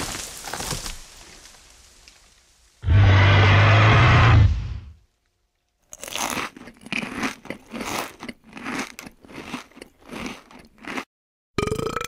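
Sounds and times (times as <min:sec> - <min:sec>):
crunchy food being chewed: 0:05.8 - 0:11.1.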